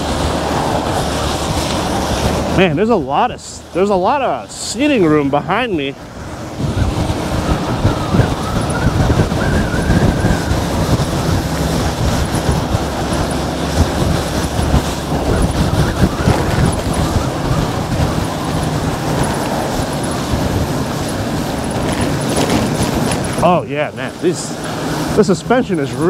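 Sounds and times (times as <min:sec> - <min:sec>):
tyres on wet pavement: 0:00.0 - 0:26.0
wind rumble on microphone: 0:00.0 - 0:26.0.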